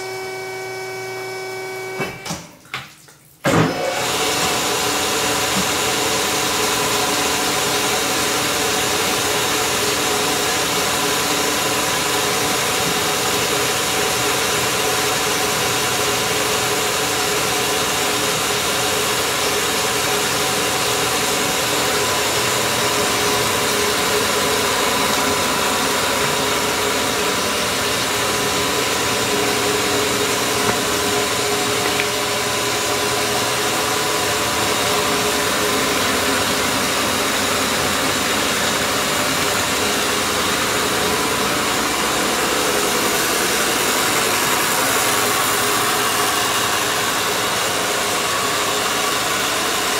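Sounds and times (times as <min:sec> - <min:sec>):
bandsaw running: 0:03.7 - 0:49.9.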